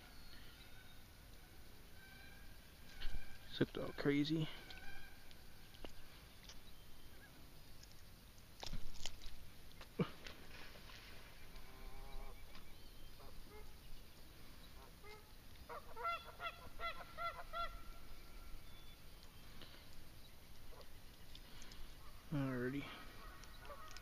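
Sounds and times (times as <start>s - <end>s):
geese honking: 0.6s - 6.2s, 11.4s - 13.8s, 14.8s - 19.1s, 20.6s - 21.0s, 22.9s - 24.0s.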